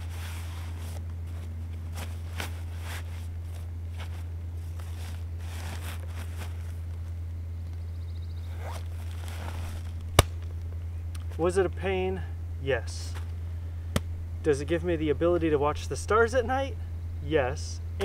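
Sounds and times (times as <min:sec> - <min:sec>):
tent fabric rustling and scraping: 0:00.0 - 0:07.1, 0:08.5 - 0:10.0
steady low hum: 0:00.0 - 0:18.0.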